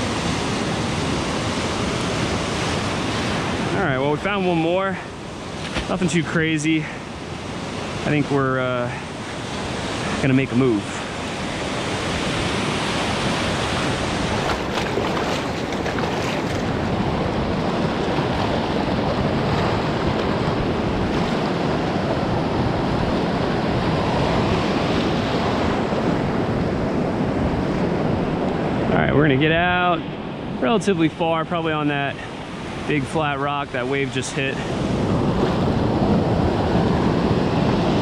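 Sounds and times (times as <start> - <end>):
ocean surf churning around rocks: 0.0 - 38.0
wind buffeting microphone: 9.2 - 30.9, 34.5 - 38.0.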